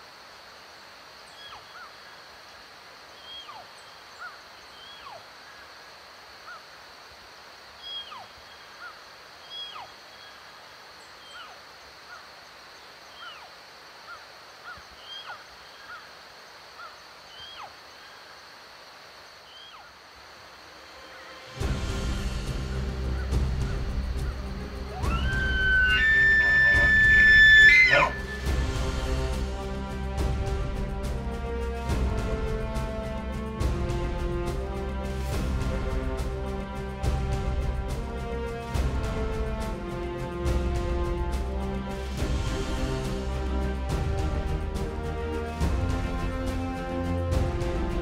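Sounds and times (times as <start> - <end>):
falling chirp-like animal calls: 3.1 - 5.8, 7.8 - 10.4, 22.5 - 28.6
music: 20.9 - 48.0.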